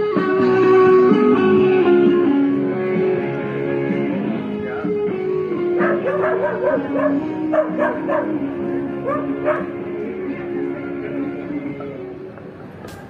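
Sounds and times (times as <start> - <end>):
guitar music: 0.0 - 13.0
dog yipping: 5.8 - 8.4, 9.0 - 9.7.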